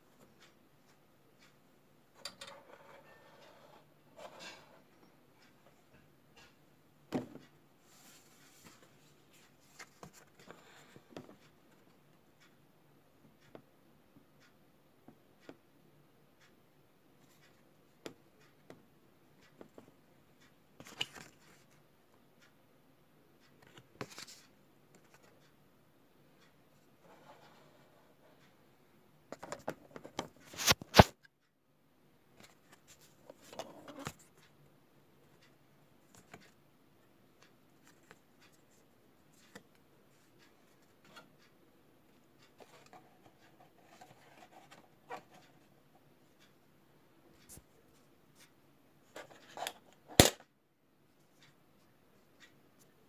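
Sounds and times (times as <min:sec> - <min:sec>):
rustles and scrapes: 0:07.8 - 0:11.5.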